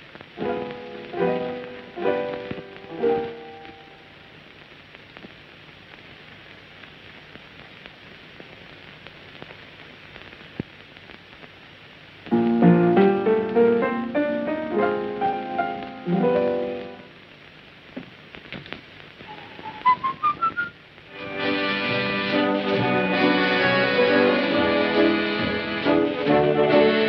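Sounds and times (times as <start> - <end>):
film soundtrack hiss: 0.0 - 27.0
piano chords and melody: 0.4 - 4.0, 12.3 - 17.1.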